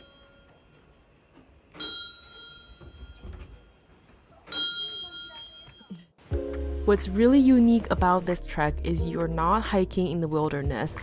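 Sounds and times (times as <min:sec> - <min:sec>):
prayer wheel bell ringing: 0:00.0 - 0:00.8, 0:01.8 - 0:03.4, 0:04.5 - 0:05.9.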